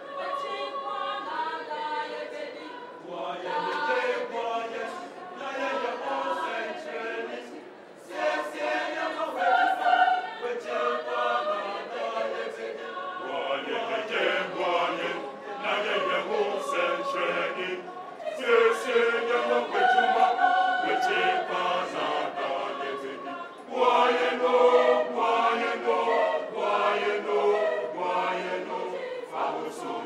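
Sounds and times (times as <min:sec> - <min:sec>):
choir singing: 0:00.0 - 0:30.0.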